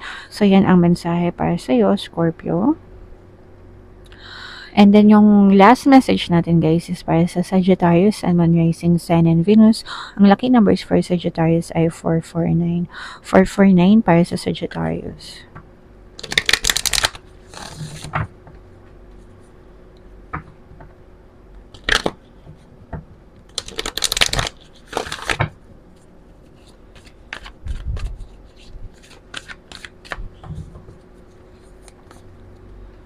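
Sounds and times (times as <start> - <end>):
cards shuffled by hand: 16.2 - 18.2, 21.7 - 22.2, 23.5 - 25.5, 26.4 - 32.3.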